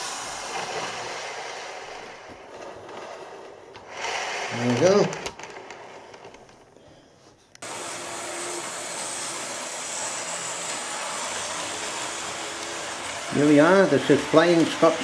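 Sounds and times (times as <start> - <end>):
model train motor whirring: 0.0 - 6.3, 7.6 - 15.0.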